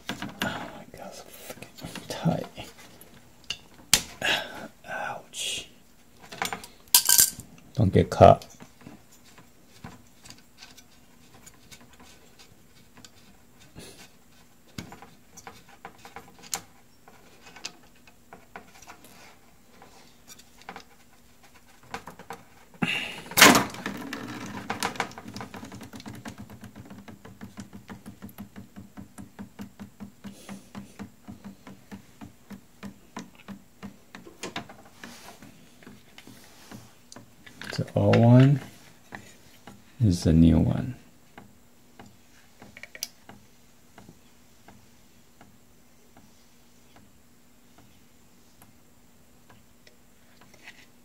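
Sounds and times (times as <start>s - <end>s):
low steady hum: 0.0s - 27.2s.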